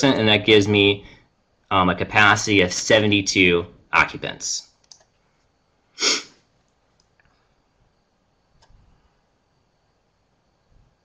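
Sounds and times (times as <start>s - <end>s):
computer mouse clicks: 4.8s - 5.2s, 8.6s - 8.8s.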